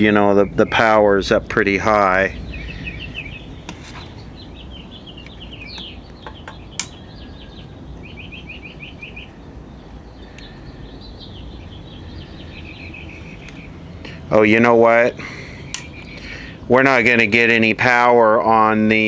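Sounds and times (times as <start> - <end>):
low steady hum: 0.0 - 19.0
small songbirds chirping: 0.0 - 19.0
sharp click: 5.2 - 7.0, 15.7 - 16.1.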